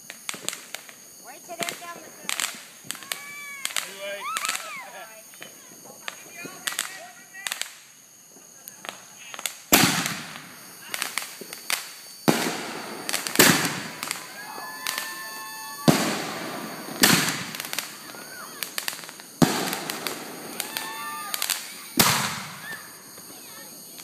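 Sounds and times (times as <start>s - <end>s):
fireworks bangs with crackle: 0.0s - 24.0s
small firework pops: 0.0s - 24.0s.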